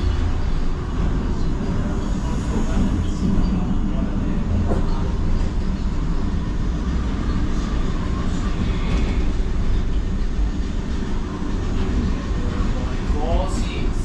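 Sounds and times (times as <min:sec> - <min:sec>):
monorail low rumble: 0:00.0 - 0:14.0.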